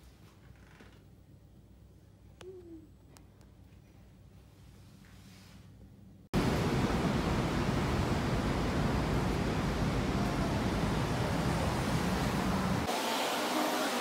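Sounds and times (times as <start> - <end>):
city street noise: 6.4 - 12.9
heavy low rumble: 6.4 - 12.9.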